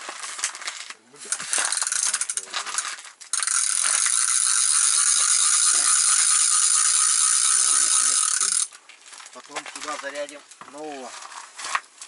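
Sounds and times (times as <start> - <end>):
fishing reel ratchet clicking: 1.4 - 8.8.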